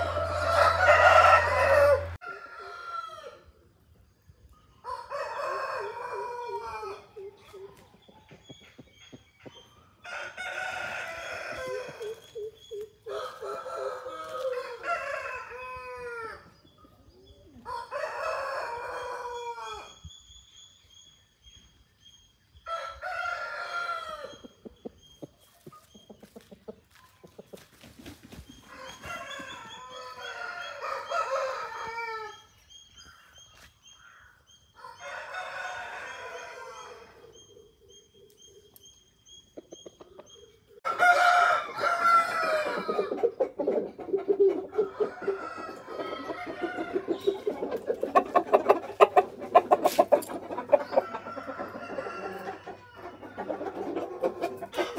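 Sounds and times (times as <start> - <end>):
roosters crowing: 0.0 - 3.6, 4.8 - 7.5, 9.9 - 16.7, 17.5 - 20.0, 22.6 - 24.5, 28.5 - 33.2, 34.2 - 37.4, 40.8 - 43.6, 44.2 - 54.9.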